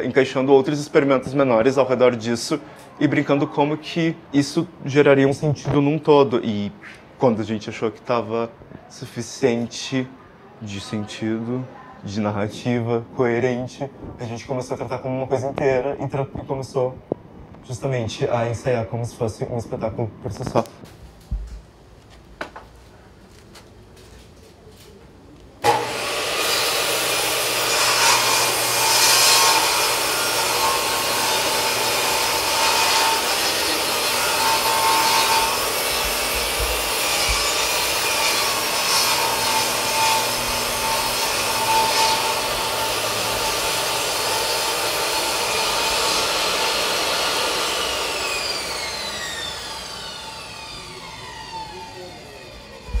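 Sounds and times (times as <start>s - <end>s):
table saw cutting wood: 25.6s - 53.0s.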